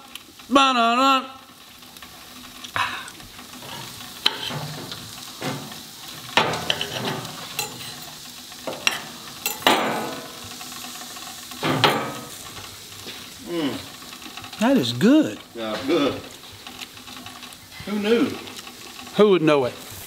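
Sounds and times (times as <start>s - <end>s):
steady hiss: 0.0s - 20.0s
fork tines tapping plate: 8.7s - 10.4s.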